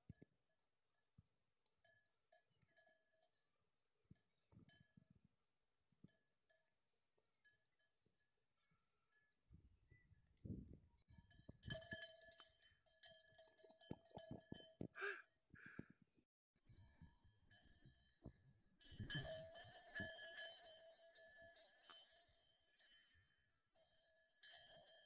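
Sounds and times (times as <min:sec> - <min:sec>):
metal bells clanking: 0:18.8 - 0:23.1.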